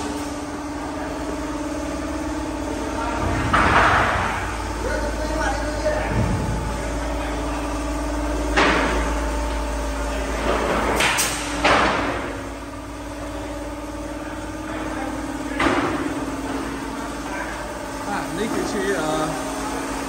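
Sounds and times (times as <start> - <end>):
building work bangs: 0.0 - 20.0
steady mechanical hum: 0.0 - 20.0.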